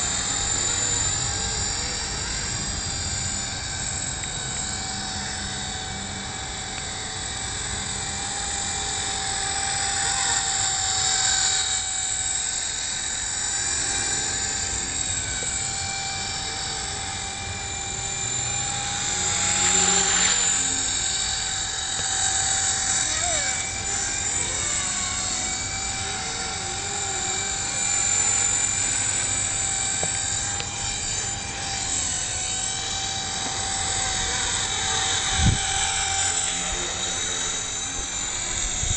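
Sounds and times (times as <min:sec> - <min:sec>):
rc helicopter rotors whining: 0:00.0 - 0:38.9.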